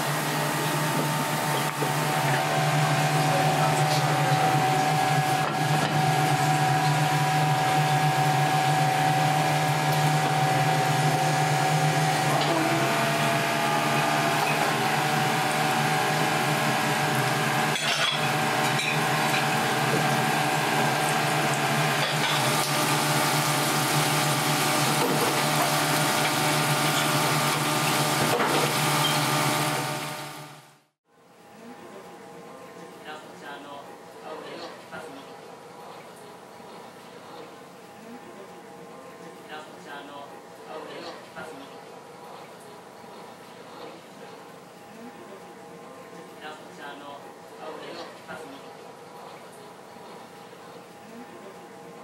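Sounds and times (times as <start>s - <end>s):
oil bubbling and sizzling: 13.4s - 30.4s.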